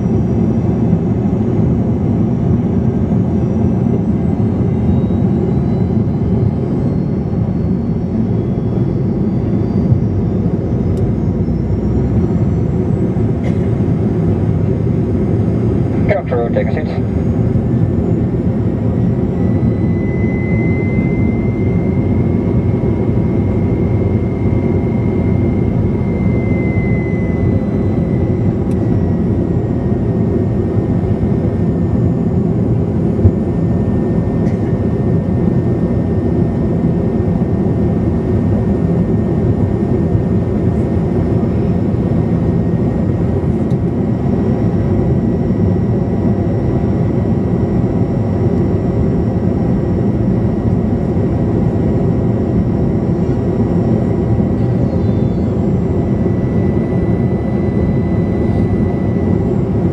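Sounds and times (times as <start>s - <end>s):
turboprop engine and propeller drone: 0.0s - 59.9s
faint high whine: 3.4s - 36.6s, 49.8s - 59.9s.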